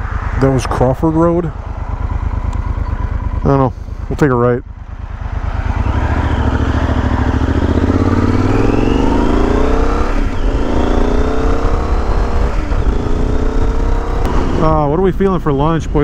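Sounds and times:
motorcycle engine accelerating: 0:00.0 - 0:16.0.

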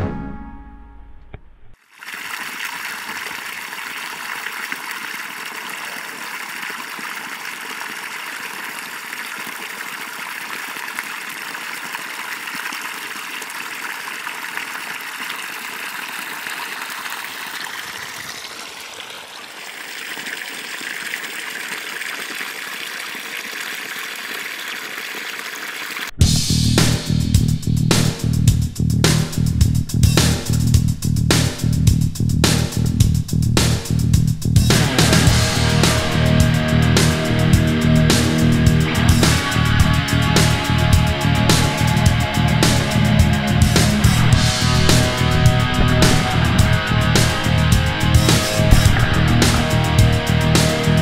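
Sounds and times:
water gushing from pipe onto leaves: 0:01.8 - 0:26.1, 0:43.6 - 0:51.0.

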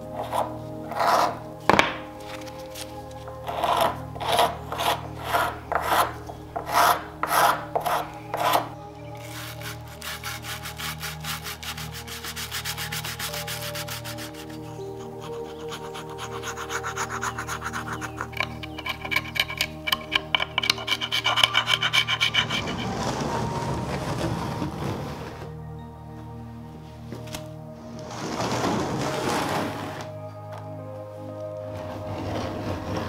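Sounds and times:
metal scraper scraping paint off wood: 0:03.4 - 0:22.8.

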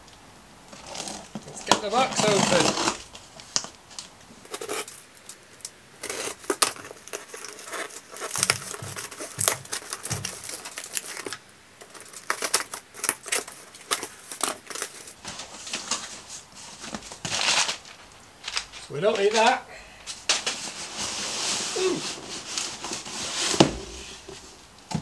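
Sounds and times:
cardboard rustling and scraping: 0:00.7 - 0:05.1, 0:06.0 - 0:19.5, 0:20.1 - 0:25.0
tape tearing: 0:00.7 - 0:19.4.

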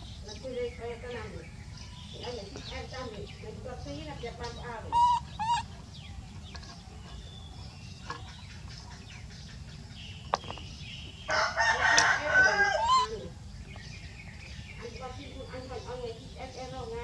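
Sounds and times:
rooster crowing: 0:11.3 - 0:13.3.

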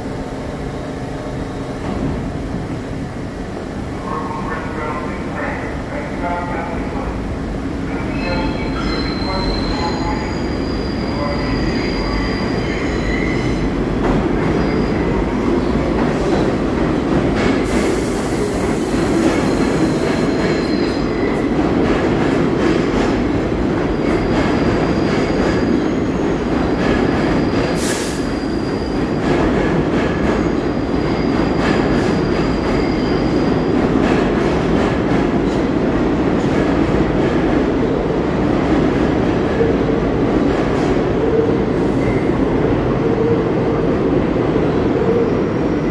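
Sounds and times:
subway train doors closing: 0:00.0 - 0:45.9
train wheels rumbling on rail: 0:00.0 - 0:45.9
high-pitched wheel squeal: 0:08.6 - 0:13.6.

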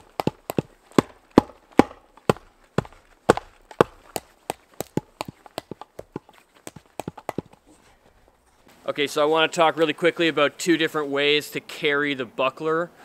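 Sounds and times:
machete chopping into wood: 0:00.2 - 0:05.0.

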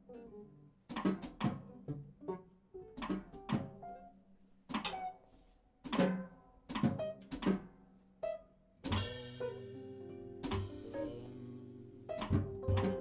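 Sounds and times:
jazz band chord stabs: 0:09.0 - 0:13.0.

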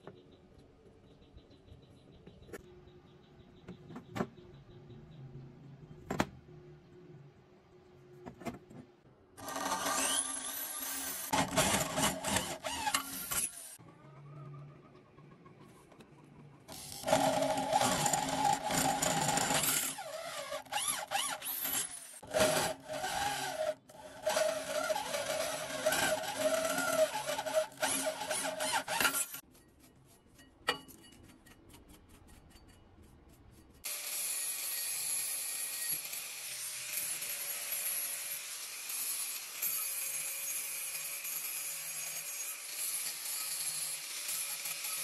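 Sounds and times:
angle grinder spinning: 0:09.4 - 0:13.8, 0:16.8 - 0:29.4
drill grinding through steel: 0:09.4 - 0:13.8, 0:16.7 - 0:29.4, 0:33.9 - 0:45.0.

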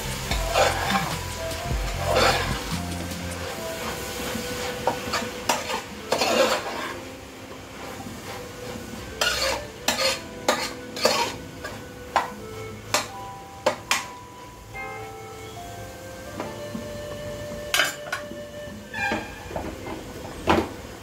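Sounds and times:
spatula scraping metal pot: 0:00.3 - 0:01.4, 0:02.0 - 0:07.1, 0:09.0 - 0:13.1.

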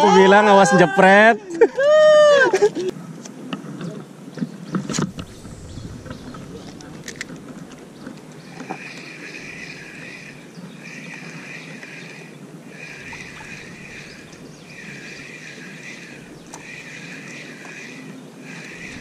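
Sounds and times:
water noise: 0:04.8 - 0:19.0.

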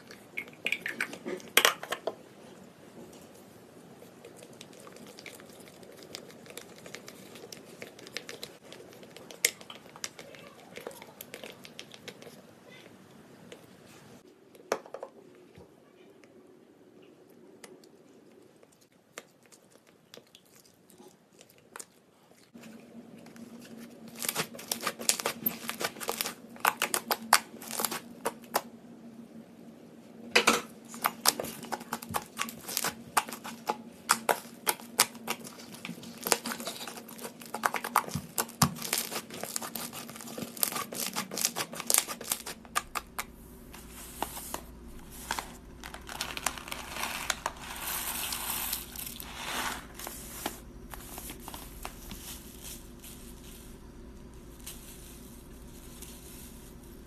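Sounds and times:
slime crackling and popping: 0:23.9 - 0:28.7, 0:30.9 - 0:52.9
low hum: 0:42.5 - 0:57.0.

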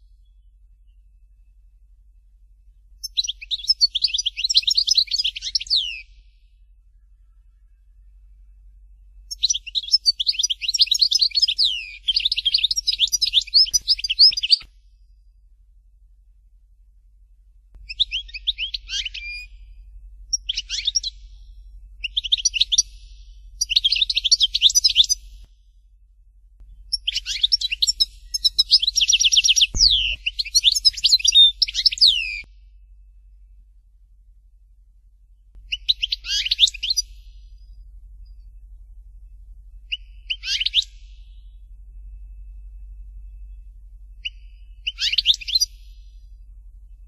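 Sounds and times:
faint low hum: 0:00.0 - 0:47.0
goldfinch twittering song: 0:03.0 - 0:06.2, 0:09.3 - 0:14.7, 0:17.8 - 0:19.6, 0:20.3 - 0:25.5, 0:26.9 - 0:32.5, 0:35.7 - 0:38.4, 0:39.9 - 0:41.6, 0:44.2 - 0:46.3.

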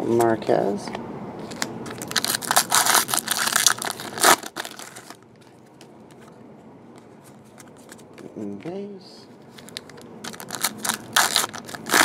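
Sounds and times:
foil wrapper crinkling and tearing: 0:01.5 - 0:05.2, 0:09.6 - 0:12.0.

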